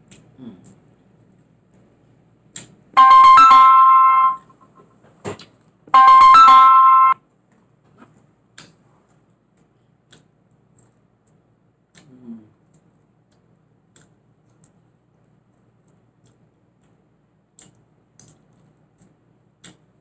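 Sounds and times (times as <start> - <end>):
two-note electronic chime: 3.0 - 4.6, 6.0 - 7.2.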